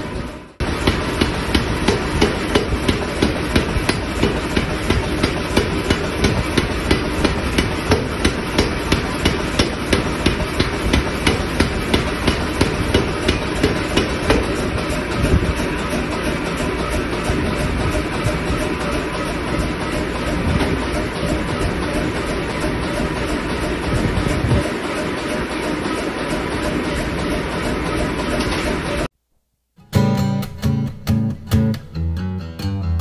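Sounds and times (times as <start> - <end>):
machine running noise: 0.0 - 29.1
power hammer blows: 0.6 - 25.6.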